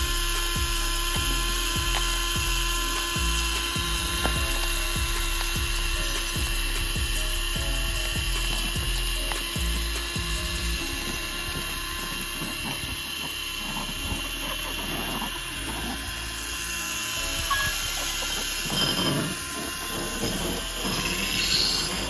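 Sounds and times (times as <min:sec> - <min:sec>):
electric motor whining: 0:00.0 - 0:22.0.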